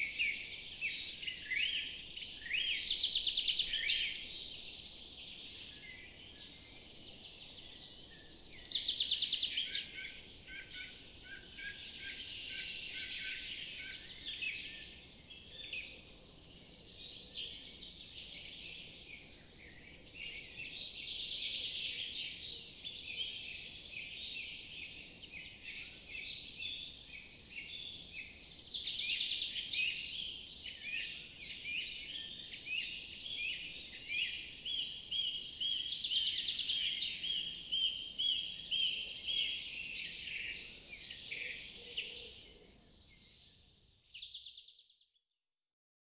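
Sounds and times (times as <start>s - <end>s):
songbirds chorus: 0.0s - 45.0s.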